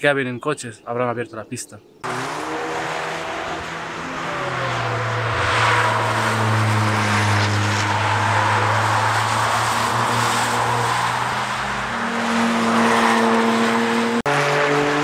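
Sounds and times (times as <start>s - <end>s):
race car engines running hard: 2.0s - 15.0s.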